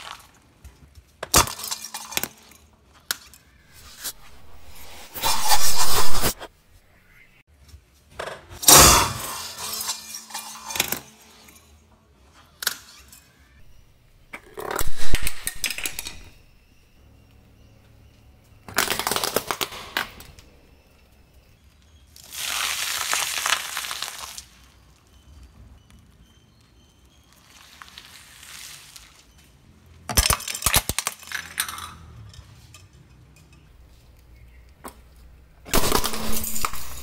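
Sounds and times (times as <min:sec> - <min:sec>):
car tyre crushing objects: 0:18.6 - 0:21.6, 0:34.3 - 0:37.0
chillies squashing: 0:22.2 - 0:24.8
plastic mugs cracking: 0:30.1 - 0:31.9.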